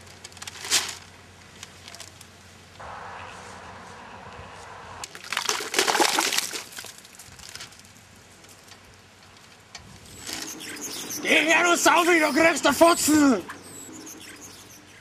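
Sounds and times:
wet splash of thick liquid: 5.1s - 6.9s.

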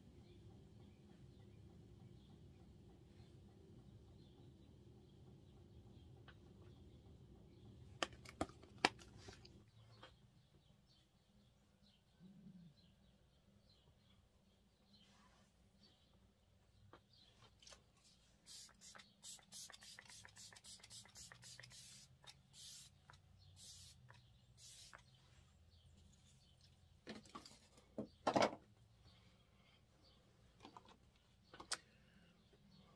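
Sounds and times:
makeup brush scratchy strokes: 18.0s - 25.2s.

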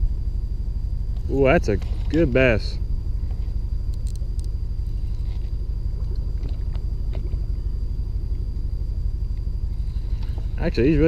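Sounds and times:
faint ticks: 3.2s - 4.6s.

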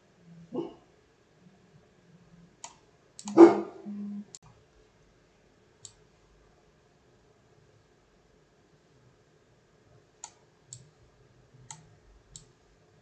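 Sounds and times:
computer mouse clicking: 2.6s - 3.4s, 5.8s - 6.0s, 10.2s - 11.0s, 11.6s - 12.5s.

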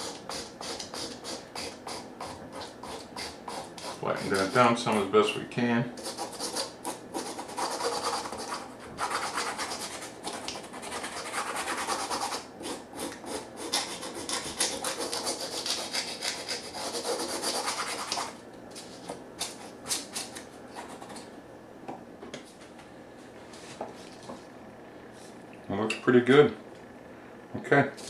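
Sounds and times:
hand file rasping on plastic: 0.0s - 4.7s, 6.0s - 18.3s.

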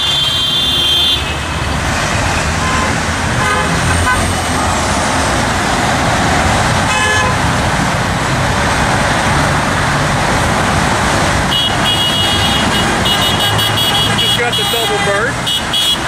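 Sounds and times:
car horn toot: 0.0s - 1.6s, 2.6s - 4.4s, 6.9s - 7.4s, 11.5s - 16.0s
heavy highway traffic roar: 0.0s - 16.0s.

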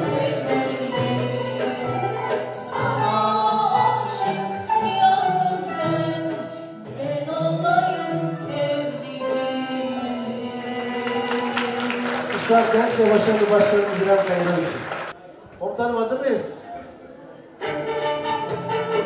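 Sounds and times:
mixed choir singing: 0.0s - 4.6s, 7.1s - 12.4s.

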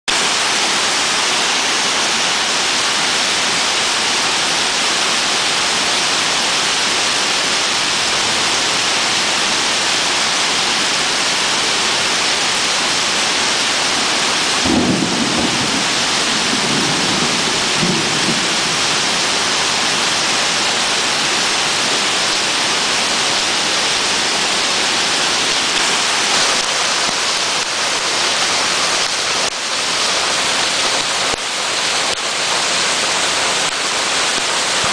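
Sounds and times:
heavy rain downpour hissing: 0.1s - 34.9s
thunder rumbling: 14.6s - 23.2s.

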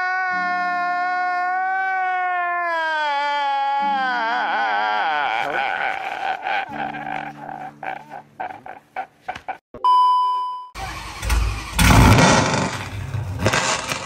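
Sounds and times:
man sobbing: 0.0s - 9.6s
steady beep: 9.8s - 10.7s
car engine starting: 10.8s - 14.0s.

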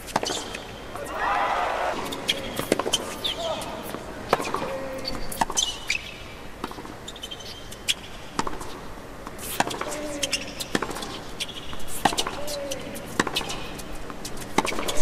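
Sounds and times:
shoes squeaking on court: 1.8s - 8.8s, 9.9s - 15.0s
tennis ball bouncing: 2.0s - 3.2s, 3.8s - 5.8s, 8.4s - 8.8s, 10.7s - 11.2s, 12.0s - 12.5s, 14.4s - 15.0s.

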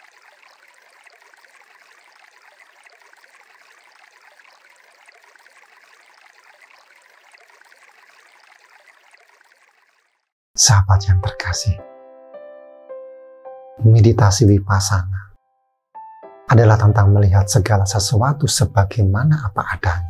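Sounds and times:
stream flowing: 0.0s - 10.3s.

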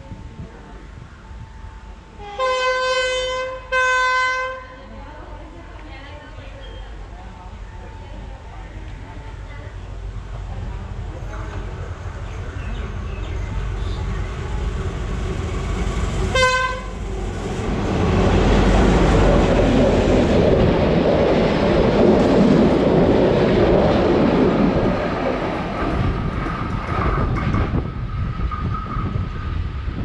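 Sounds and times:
train rumbling past: 0.0s - 30.0s
train horn blast: 2.2s - 4.9s, 16.2s - 17.0s
wheels clattering on rails: 17.0s - 29.8s.

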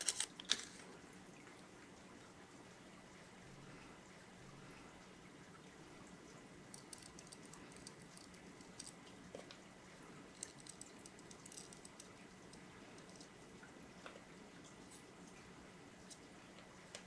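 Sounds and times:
small metal parts clicking: 0.0s - 0.8s, 6.7s - 9.0s, 10.4s - 13.3s.

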